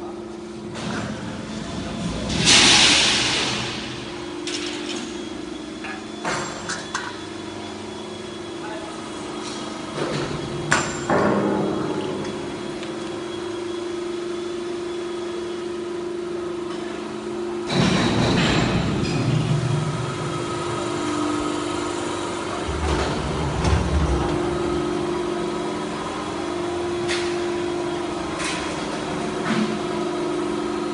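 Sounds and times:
hydraulic pump humming: 18.8s - 30.9s
low rumbles: 22.6s - 25.3s.

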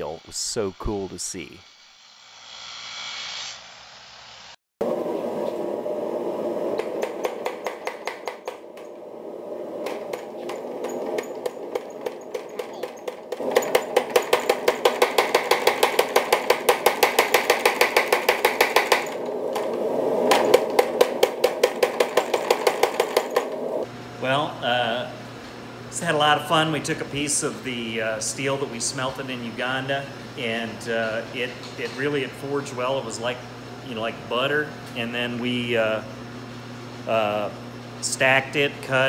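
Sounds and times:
machine running noise: 3.6s - 39.0s
power hammer striking steel: 6.8s - 9.0s, 9.8s - 23.8s.

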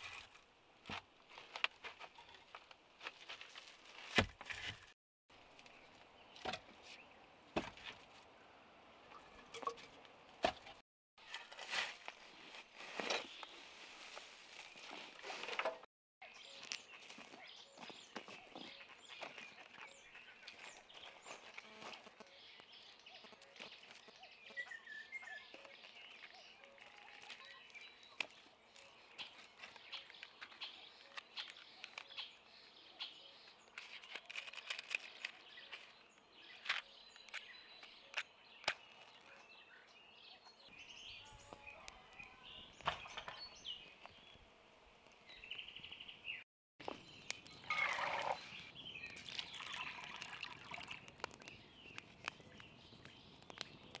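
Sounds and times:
songbirds chirping: 0.0s - 54.0s
dry sticks clicking and knocking: 33.7s - 35.8s, 51.0s - 54.0s.

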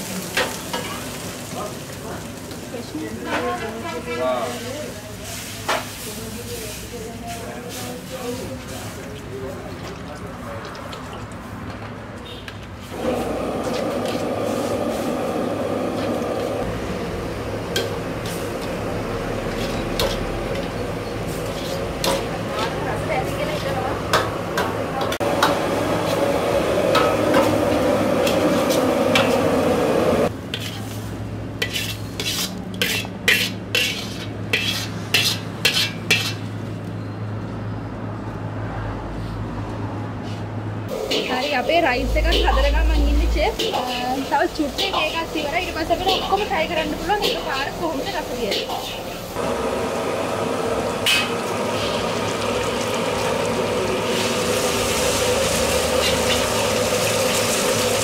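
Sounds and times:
food sizzling: 0.0s - 11.6s, 12.8s - 36.5s, 40.9s - 58.0s
metal ladle scraping a wok: 12.8s - 16.6s, 17.7s - 22.8s, 30.5s - 36.6s, 40.9s - 49.4s, 54.1s - 58.0s
low hum: 41.9s - 43.6s
egg sizzling in hot oil: 47.1s - 58.0s.

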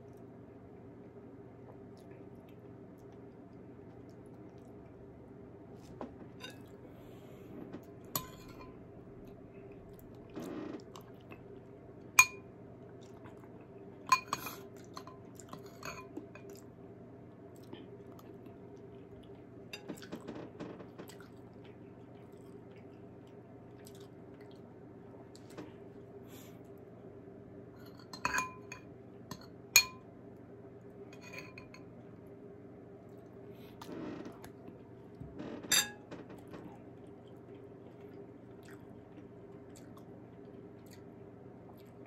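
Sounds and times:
chewing: 1.7s - 5.0s, 5.8s - 12.2s, 12.8s - 26.8s, 36.1s - 42.0s
metal spoon clinking on bowl: 8.2s - 8.8s, 12.2s - 12.4s, 14.1s - 16.5s, 27.8s - 30.0s, 31.2s - 31.9s.

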